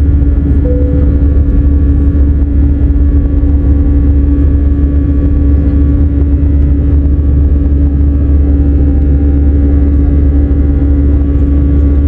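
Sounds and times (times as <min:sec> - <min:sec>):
jet engines droning in cabin: 0:00.0 - 0:12.0.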